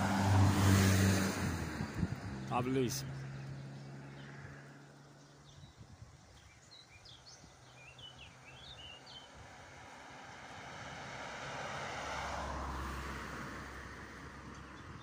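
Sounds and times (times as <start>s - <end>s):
passing vehicle: 0.0s - 6.1s, 7.1s - 15.0s
small birds chirping: 2.2s - 9.4s, 14.4s - 15.0s.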